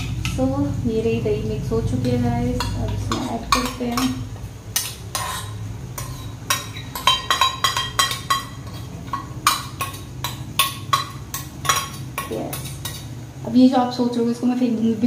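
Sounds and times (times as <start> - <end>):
low steady hum: 0.0 - 15.0
metal spoon scraping glass bowl: 4.8 - 8.9.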